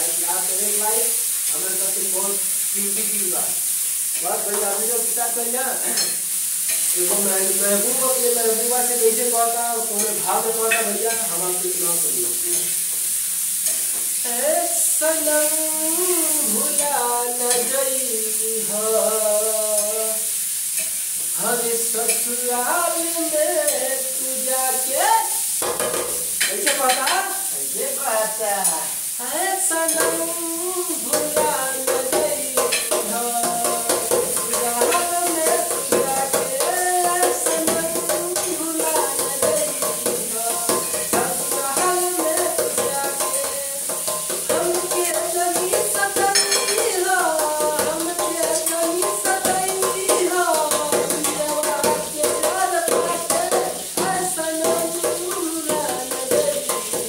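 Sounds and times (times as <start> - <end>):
man singing: 0.0 - 3.6, 4.2 - 6.2, 6.9 - 12.8, 14.2 - 20.3, 21.3 - 25.4, 26.5 - 57.0
steady hiss: 0.0 - 57.0
hands drumming on metal pot lid: 25.6 - 26.2, 31.1 - 57.0.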